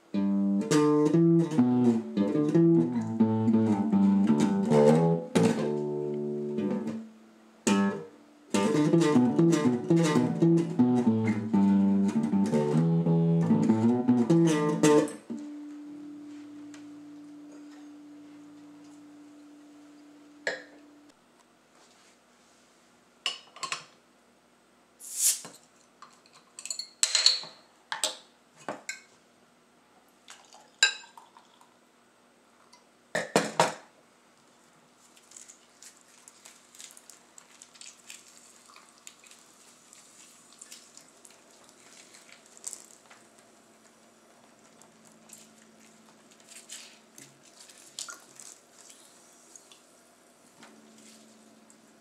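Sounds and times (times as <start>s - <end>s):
bass guitar note: 0.2s - 7.1s, 7.7s - 21.1s
beer fizzing: 30.3s - 31.8s, 35.6s - 43.1s
beer pouring: 30.3s - 31.8s, 36.8s - 43.1s.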